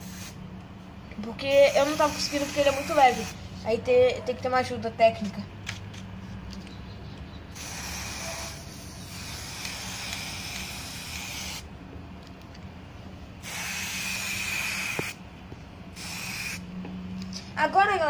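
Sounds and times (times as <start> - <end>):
spray paint can hissing: 0.0 - 0.4, 1.4 - 3.4, 7.5 - 11.7, 13.4 - 15.2, 15.9 - 16.7.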